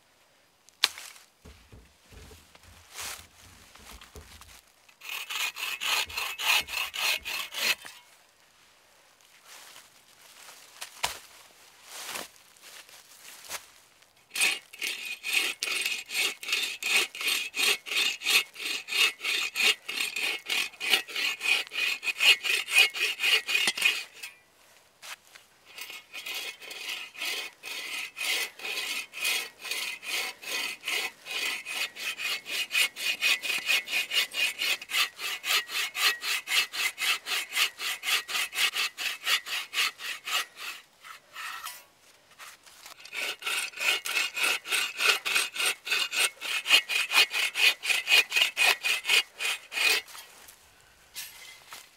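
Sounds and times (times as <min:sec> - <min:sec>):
bow saw cutting a log: 0:05.0 - 0:08.0, 0:14.3 - 0:24.4, 0:25.7 - 0:50.3.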